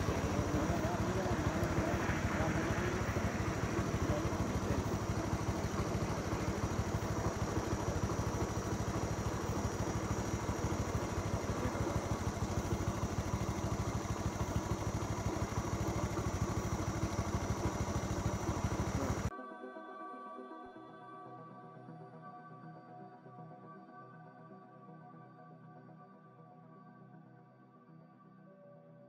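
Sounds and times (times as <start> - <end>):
vehicle engine idling: 0.0 - 19.3.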